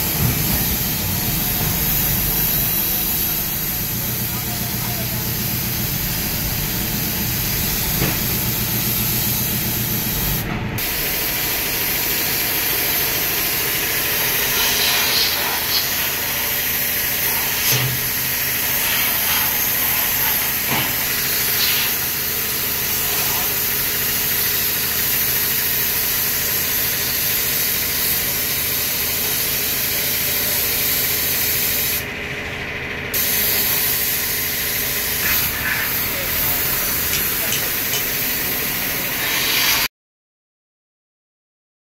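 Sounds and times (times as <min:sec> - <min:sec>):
low machine hum: 0:00.0 - 0:21.5
spray gun hissing: 0:00.0 - 0:32.0, 0:33.2 - 0:39.9.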